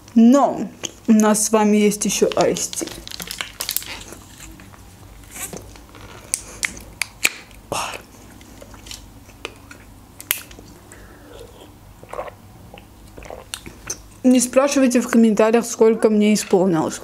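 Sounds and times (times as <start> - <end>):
plastic bottle crackling: 2.1 - 4.8.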